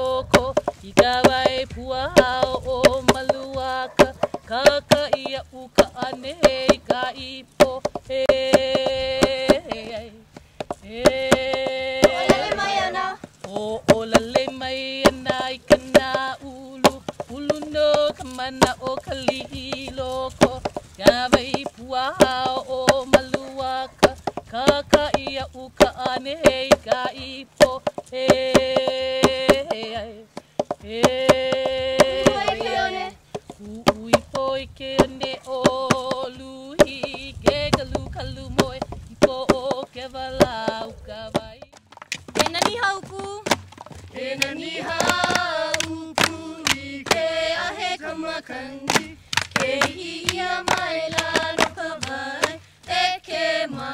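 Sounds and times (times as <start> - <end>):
gourd drum strikes: 0.0 - 53.9
chant sung in long notes: 31.0 - 33.2.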